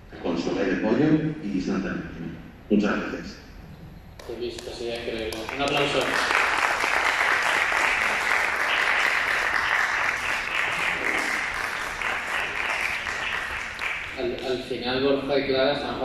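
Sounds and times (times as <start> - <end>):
audience applauding: 4.6 - 14.8.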